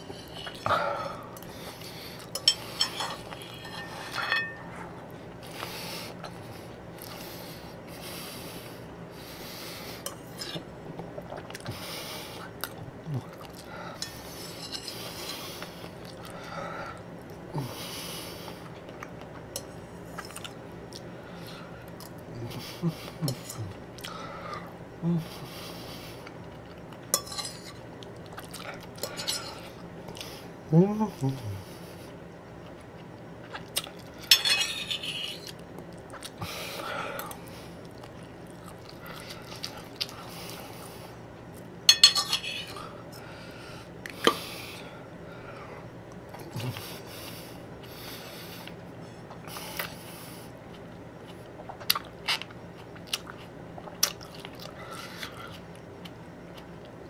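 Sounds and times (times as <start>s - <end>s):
fork scraping on plate: 0.0s - 0.6s, 2.3s - 4.8s, 14.0s - 15.4s, 27.2s - 27.8s, 34.3s - 35.6s, 41.9s - 42.8s
close-up chewing: 10.6s - 14.4s, 27.8s - 29.2s, 32.6s - 34.3s, 35.4s - 36.5s, 37.2s - 41.7s, 48.6s - 57.0s.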